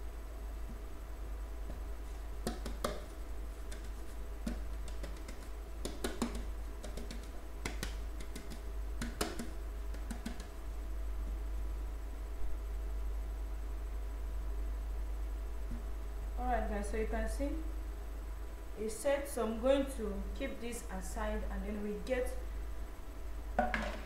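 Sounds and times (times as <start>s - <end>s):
metal pan knocking: 23.6s - 24.0s.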